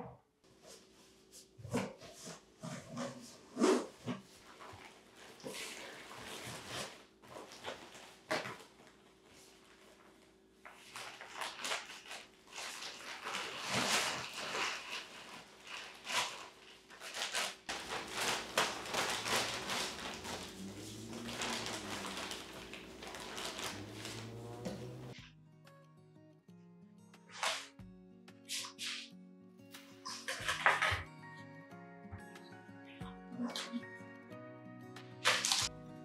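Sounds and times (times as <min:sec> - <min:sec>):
plastic wrapping crinkling: 0:04.4 - 0:25.2, 0:35.2 - 0:35.7
scissors cutting plastic bag: 0:04.5 - 0:09.0, 0:10.6 - 0:25.2, 0:27.3 - 0:27.7, 0:35.2 - 0:35.7.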